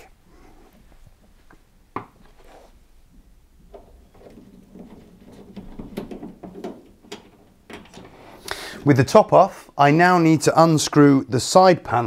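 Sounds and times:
handling knocks and scraping: 0.4 - 9.4.

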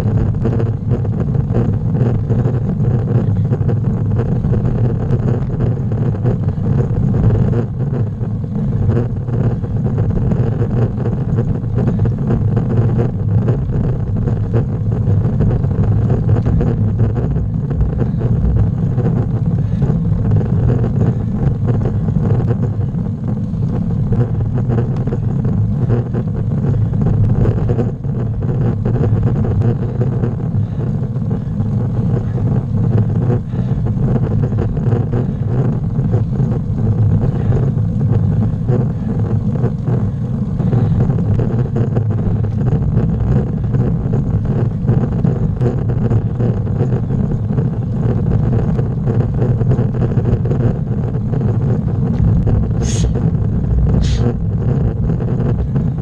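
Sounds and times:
wind and road rumble: 0.0 - 56.0.

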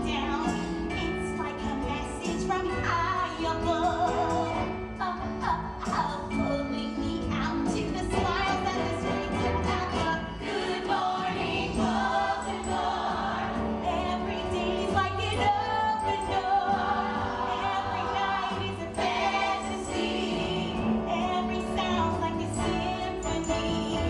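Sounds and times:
woman singing: 0.0 - 12.0, 13.8 - 24.0
pit band playing: 8.2 - 24.0
choir-like backing voices: 8.8 - 24.0.

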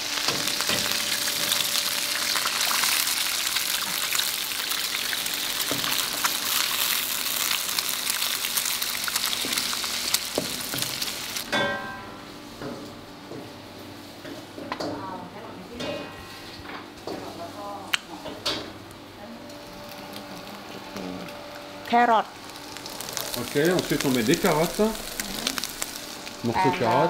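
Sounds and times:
eggs sizzling in oil: 0.0 - 11.5, 21.6 - 27.0.

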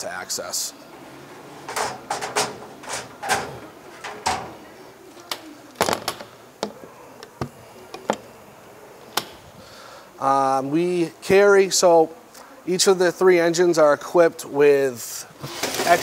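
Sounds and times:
equipment knocking and clanking: 1.6 - 4.6.

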